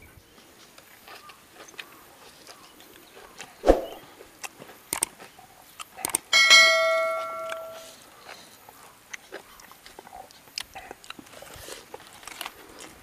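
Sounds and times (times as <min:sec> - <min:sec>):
wet mouth clicks and chewing: 0:00.7 - 0:06.3, 0:07.5 - 0:13.0
ringing metallic clang: 0:06.4 - 0:07.9.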